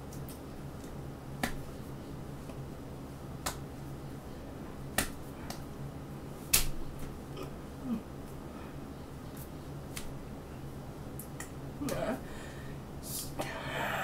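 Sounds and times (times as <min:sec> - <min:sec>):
low room hum: 0:00.0 - 0:14.0
hands slapping together: 0:00.1 - 0:01.7, 0:03.4 - 0:03.6, 0:04.9 - 0:05.7, 0:06.5 - 0:07.2, 0:09.4 - 0:10.2.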